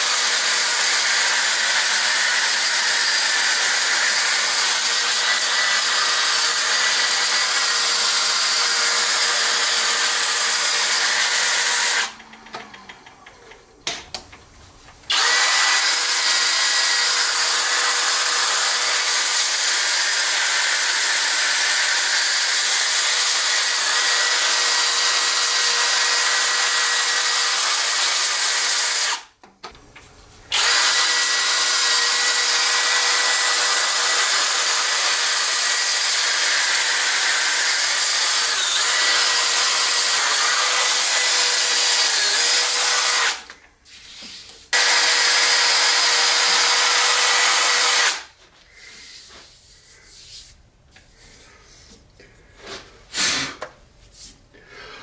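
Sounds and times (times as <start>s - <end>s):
cordless drill motor whine: 15.1s - 17.0s, 30.5s - 32.4s.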